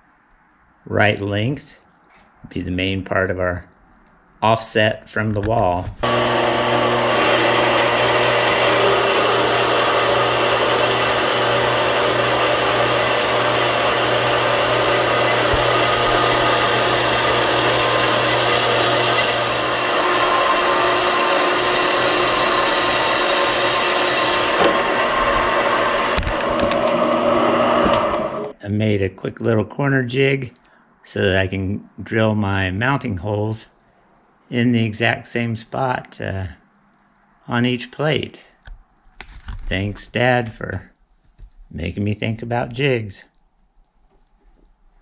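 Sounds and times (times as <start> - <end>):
band saw cutting steel: 6.0 - 28.6
motor hum: 6.0 - 28.6.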